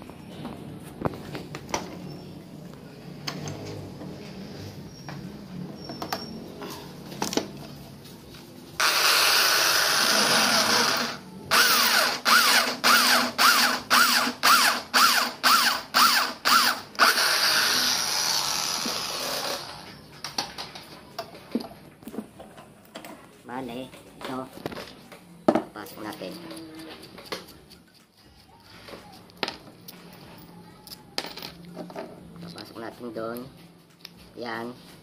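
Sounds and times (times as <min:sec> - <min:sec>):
electric drill boring into metal: 0:08.8 - 0:19.9.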